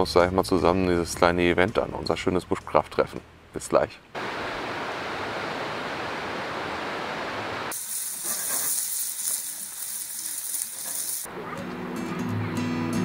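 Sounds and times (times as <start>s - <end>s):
stream water rushing: 4.2s - 7.7s
bacon sizzling in frying pan: 7.7s - 11.3s.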